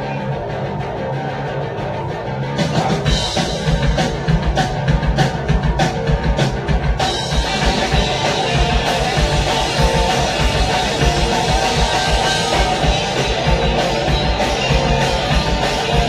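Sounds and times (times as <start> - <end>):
garage rock band playing: 0.0 - 16.0.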